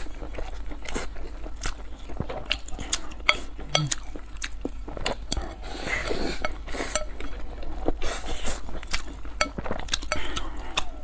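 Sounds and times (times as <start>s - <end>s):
chopsticks clicking on ceramic bowl: 3.3s - 4.1s, 6.4s - 7.4s, 9.0s - 10.8s.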